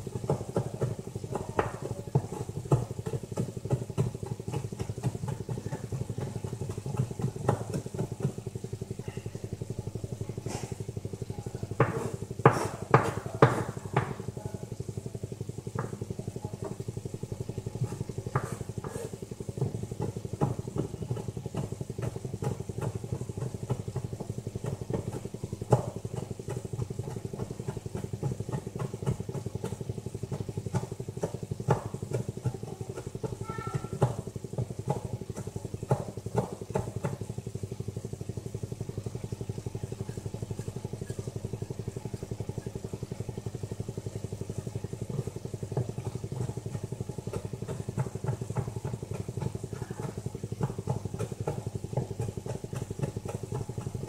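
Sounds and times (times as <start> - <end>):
steady low hum: 0.0 - 54.0
knife tapping on chopping board: 11.8 - 14.2, 18.3 - 23.8, 33.0 - 37.2.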